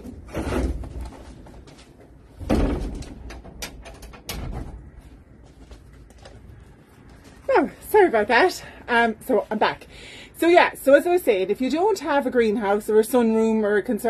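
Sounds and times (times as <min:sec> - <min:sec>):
door heavy knocks: 0:02.4 - 0:04.8.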